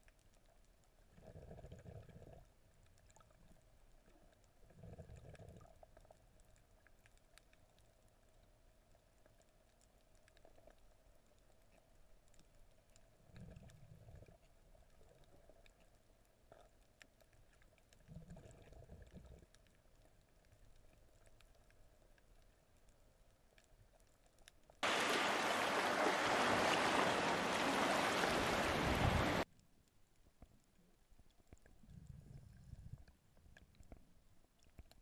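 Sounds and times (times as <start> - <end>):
loud rushing water: 24.8 - 29.4.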